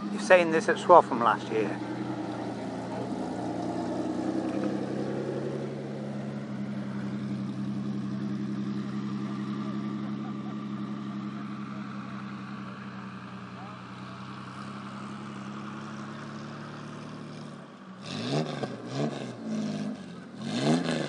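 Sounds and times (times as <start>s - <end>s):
car engine running: 0.0s - 21.0s.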